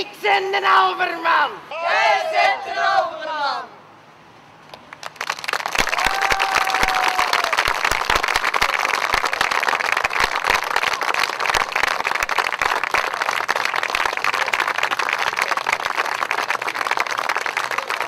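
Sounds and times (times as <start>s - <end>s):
audience applauding: 4.8s - 18.0s.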